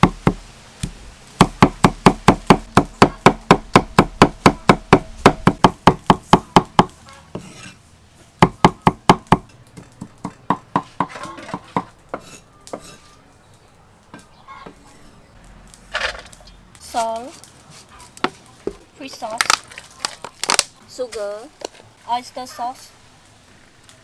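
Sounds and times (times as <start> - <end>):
cleaver chopping on wooden board: 1.4 - 7.5, 8.4 - 12.9.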